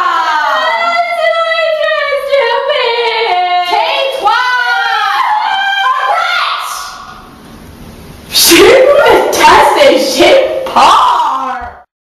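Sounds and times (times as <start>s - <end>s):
girl singing unaccompanied: 0.0s - 6.3s.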